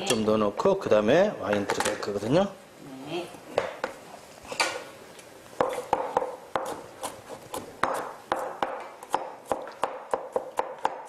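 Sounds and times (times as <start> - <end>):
knife chopping on wooden board: 5.6 - 11.0.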